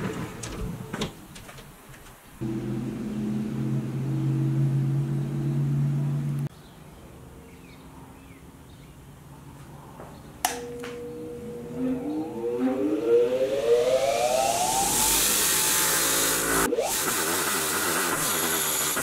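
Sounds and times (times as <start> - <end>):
electric machine hum: 2.4 - 6.5, 10.5 - 19.0
switch click: 10.4 - 11.1
bench grinder motor whining: 11.4 - 19.0.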